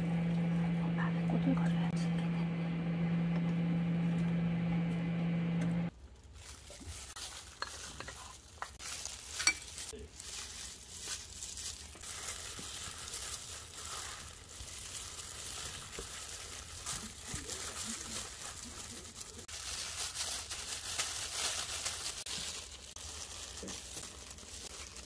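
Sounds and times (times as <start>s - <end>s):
electrical hum: 0.0s - 5.9s
rice and seaweed rustling: 5.9s - 25.0s.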